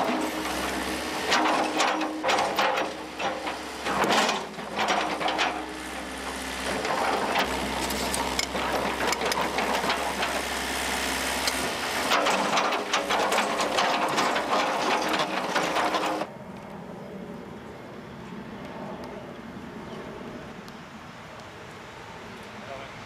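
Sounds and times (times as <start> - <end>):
metallic clanks and knocks: 0.0 - 5.8, 6.7 - 10.4, 11.4 - 16.3
bulldozer engine running: 0.0 - 16.4.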